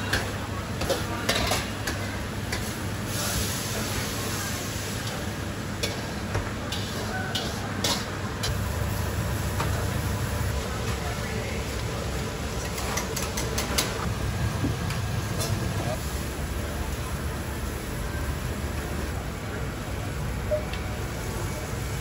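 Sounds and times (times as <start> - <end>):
wok burner roaring: 0.0 - 22.0
food sizzling in a wok: 0.2 - 10.9.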